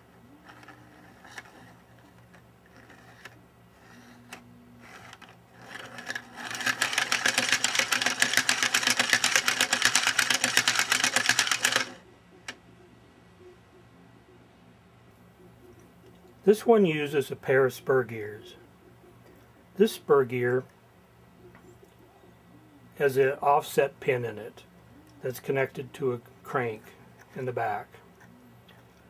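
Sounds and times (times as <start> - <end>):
rapid plastic clatter: 4.9 - 12.0.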